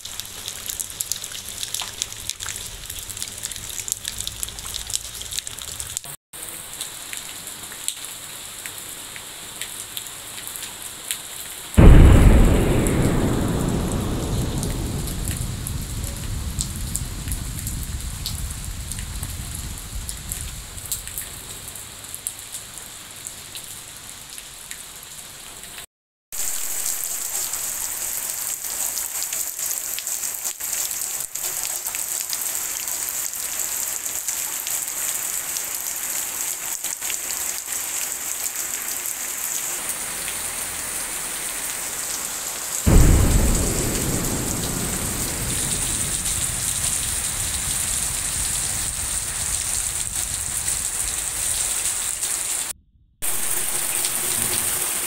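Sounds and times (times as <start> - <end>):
steady rain: 0.0 - 55.0
thunder clap rumbling: 11.8 - 21.8, 42.9 - 55.0.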